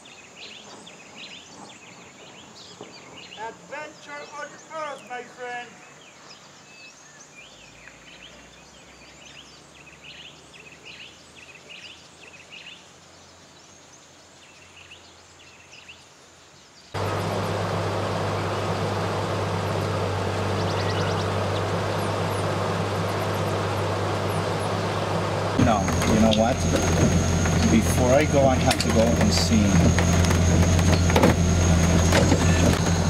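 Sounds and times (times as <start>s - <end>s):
loud steady rushing noise: 17.0s - 33.0s
faint bird chirps: 20.5s - 22.1s.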